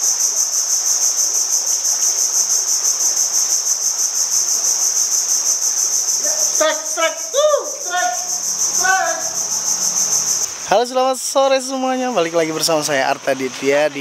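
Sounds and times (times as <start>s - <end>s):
insects trilling: 0.0s - 14.0s
short higher insect calls: 0.0s - 14.0s.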